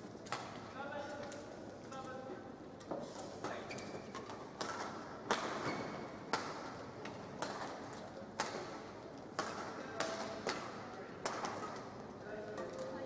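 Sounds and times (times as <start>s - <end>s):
rackets hitting shuttlecock: 4.1s - 11.9s.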